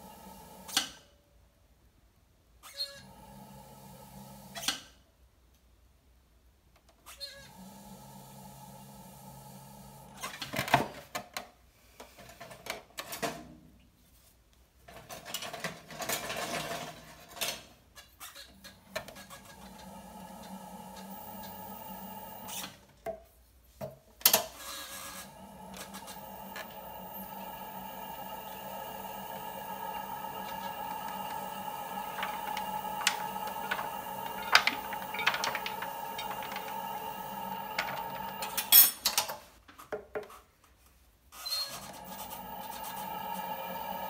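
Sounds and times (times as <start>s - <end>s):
pottery wheel motor humming: 18.7s - 22.7s, 25.1s - 38.8s, 41.7s - 44.0s.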